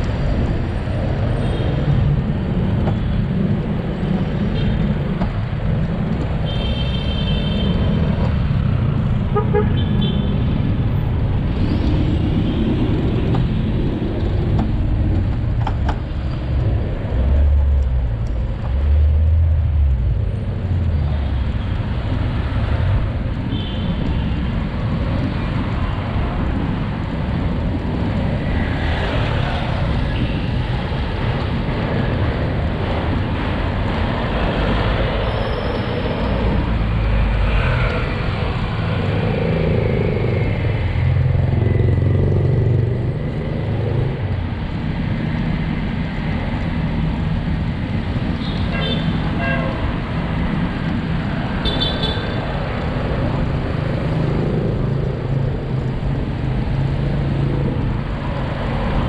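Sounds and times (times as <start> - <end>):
city traffic noise: 0.0 - 59.0
vehicles passing: 0.0 - 59.0
wind rumble: 10.2 - 48.5.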